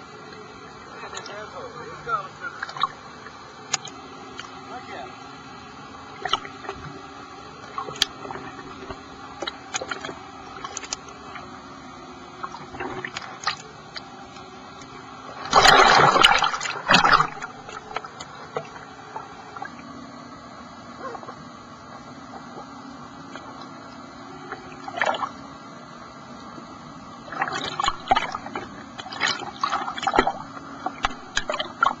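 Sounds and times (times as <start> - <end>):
underwater clicks: 2.6 - 4.6, 7.6 - 11.4, 12.4 - 18.8, 27.3 - 32.0
diver exhaling air bubbles: 15.4 - 18.2.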